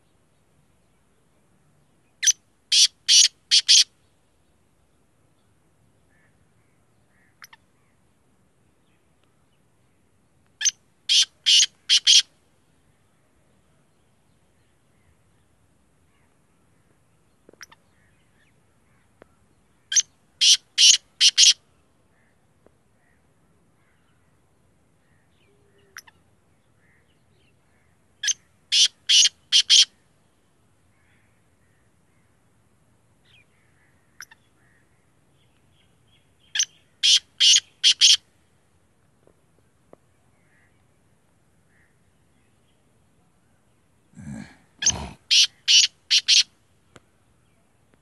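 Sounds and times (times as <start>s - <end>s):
francolin calling: 2.2s - 3.9s, 10.6s - 12.3s, 19.9s - 21.6s, 28.2s - 30.0s, 36.4s - 38.2s, 44.2s - 46.5s.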